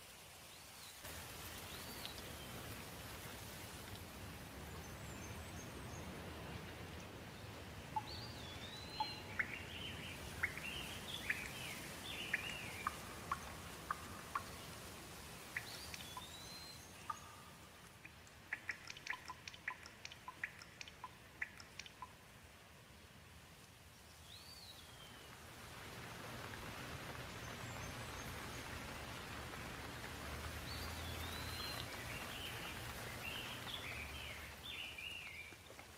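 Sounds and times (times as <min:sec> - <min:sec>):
whistled gliding bird calls: 0:08.0 - 0:14.5, 0:15.6 - 0:17.6
bird chirps: 0:08.0 - 0:14.6, 0:15.6 - 0:22.2.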